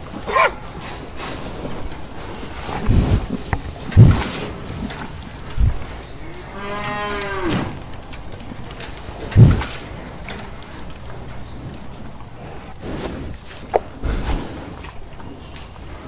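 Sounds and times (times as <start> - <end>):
cow mooing: 6.2 - 7.8.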